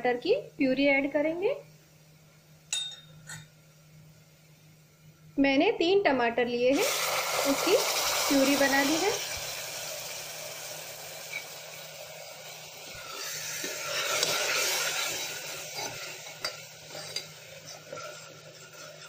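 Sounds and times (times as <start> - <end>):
metal spoon scraping pot: 13.6 - 19.0.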